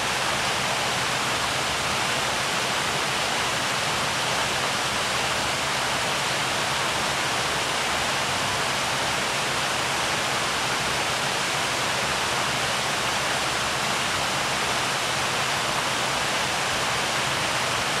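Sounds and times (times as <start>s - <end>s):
fountain water splashing: 0.0s - 18.0s.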